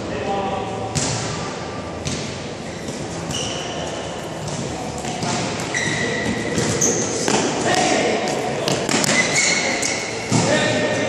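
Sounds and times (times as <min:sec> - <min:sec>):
sneakers squeaking on wooden floor: 0:02.7 - 0:07.5, 0:08.8 - 0:10.4.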